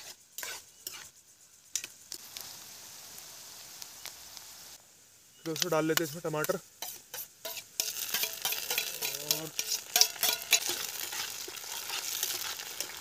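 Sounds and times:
frying sizzle: 0:00.0 - 0:13.0
spoon clacking against pan: 0:05.5 - 0:13.0.

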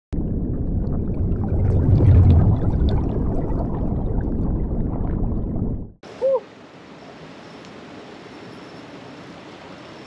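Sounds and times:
underwater bubbling and rumbling: 0:00.1 - 0:06.0
bubble pops crackling: 0:00.2 - 0:06.0.

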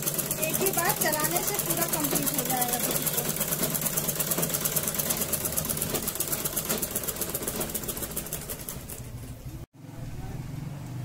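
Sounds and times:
sewing machine stitching: 0:00.0 - 0:09.6.

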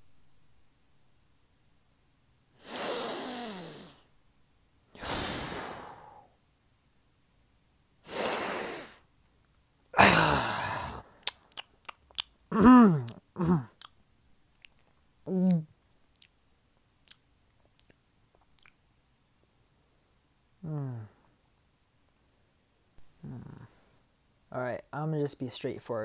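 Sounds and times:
person sighing: 0:02.6 - 0:04.0, 0:05.0 - 0:06.3, 0:09.9 - 0:11.3, 0:12.5 - 0:13.8, 0:15.3 - 0:15.7, 0:20.6 - 0:21.3, 0:23.2 - 0:23.8
short vocal sound: 0:02.6 - 0:04.1, 0:04.9 - 0:06.3, 0:09.9 - 0:11.4, 0:12.5 - 0:13.8, 0:15.3 - 0:15.8, 0:20.6 - 0:21.3, 0:23.0 - 0:23.9.

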